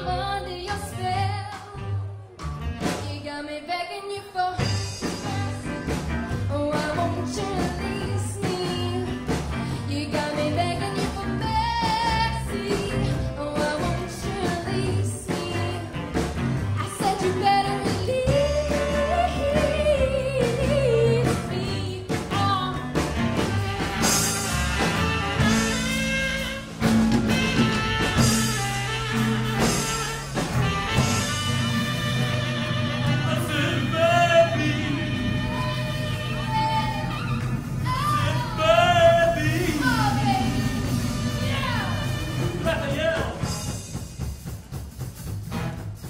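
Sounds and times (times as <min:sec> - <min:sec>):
woman singing: 0:00.0 - 0:02.2, 0:03.0 - 0:05.9, 0:06.5 - 0:16.2, 0:16.8 - 0:23.0, 0:33.5 - 0:42.6
rock band playing: 0:00.0 - 0:03.3, 0:04.4 - 0:46.0
cymbals crashing: 0:39.4 - 0:42.7.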